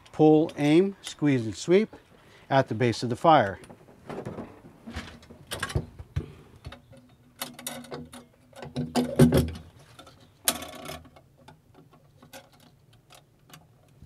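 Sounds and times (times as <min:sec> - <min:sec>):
metal clicks and rattles: 0:06.6 - 0:14.0.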